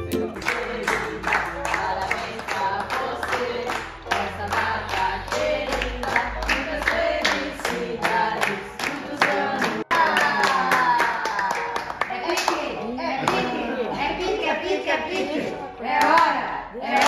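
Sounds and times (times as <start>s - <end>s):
group singing: 0.0s - 11.5s, 12.1s - 17.0s
clapping in time: 0.1s - 13.5s.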